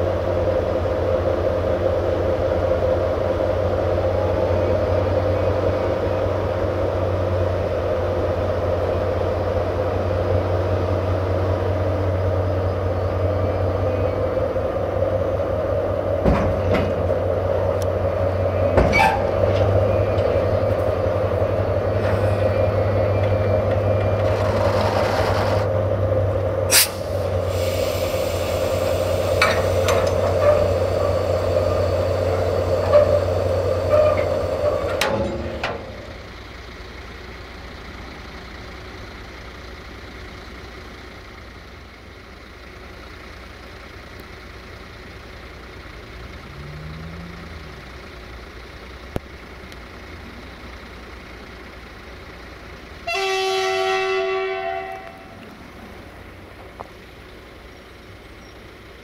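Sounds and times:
diesel locomotive running: 0.0s - 59.0s
air brake hiss: 22.0s - 22.5s, 26.7s - 34.9s.

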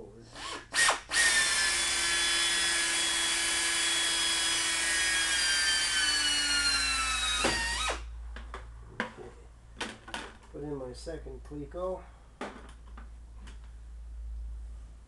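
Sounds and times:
power drill boring metal: 0.3s - 8.0s.

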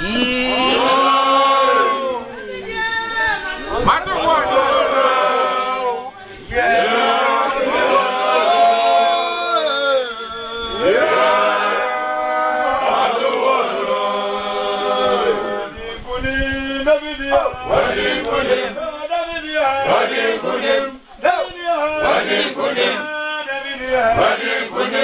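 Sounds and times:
men chanting: 0.0s - 25.0s.

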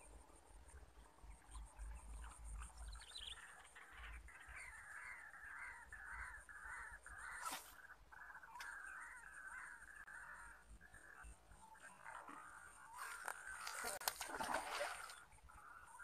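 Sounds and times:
harsh caw-like bird calls: 3.7s - 16.0s.

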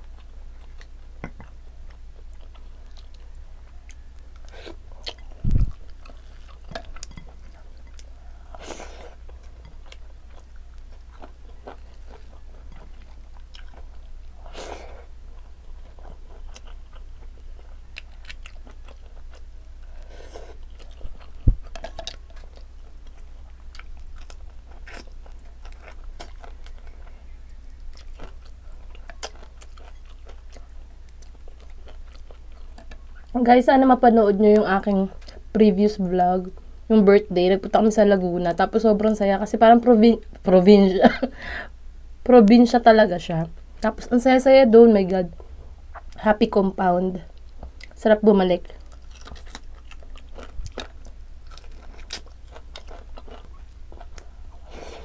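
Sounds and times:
close chewing and mouth sounds: 0.0s - 36.7s, 45.2s - 55.0s
steady low hum: 0.0s - 55.0s.

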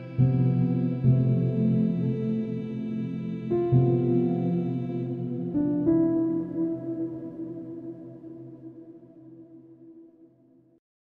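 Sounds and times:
soft ambient instrumental music: 0.0s - 10.5s.

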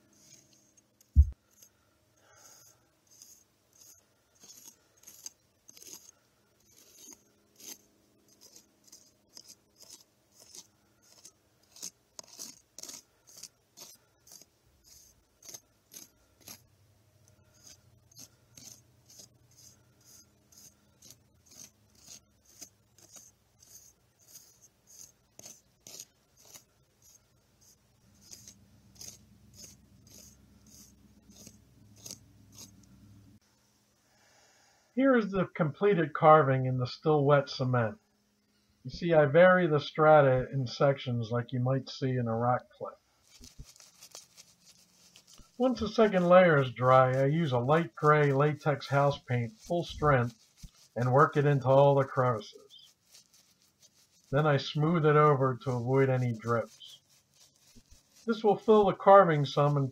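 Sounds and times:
knife blade scraping concrete: 3.1s - 16.7s, 17.6s - 27.2s, 28.2s - 32.8s, 45.1s - 53.3s, 54.3s - 57.6s.

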